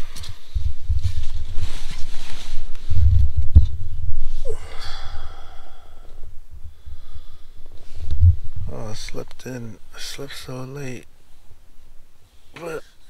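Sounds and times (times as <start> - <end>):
man breathing and sighing: 0.0 - 0.6, 4.3 - 9.0
gliding pitched breath: 4.3 - 8.5
loud low rumble: 8.1 - 9.1.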